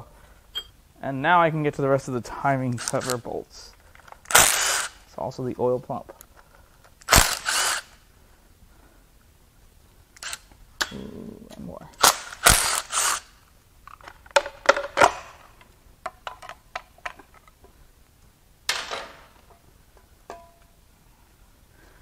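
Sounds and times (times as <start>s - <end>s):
short metallic ring: 0.6s - 0.8s.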